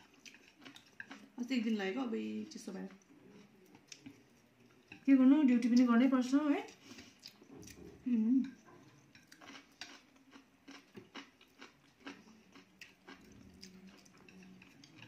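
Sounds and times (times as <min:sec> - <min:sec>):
chewing: 0:00.0 - 0:01.7, 0:02.4 - 0:05.9, 0:06.6 - 0:15.0
chopsticks clicking on plates: 0:08.4 - 0:15.0.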